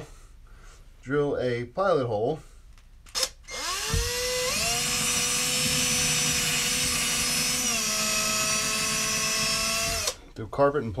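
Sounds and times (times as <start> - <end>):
cordless drill whining: 3.1 - 10.2.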